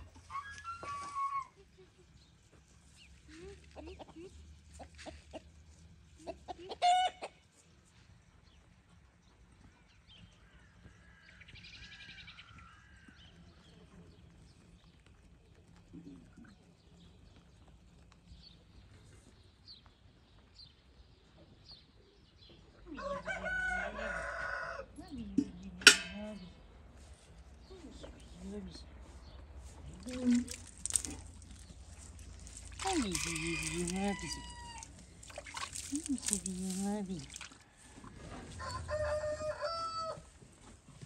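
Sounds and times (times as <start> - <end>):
chicken squawk: 6.7 - 7.3
distant rooster crowing: 23.0 - 24.9, 32.8 - 35.0, 37.6 - 40.4.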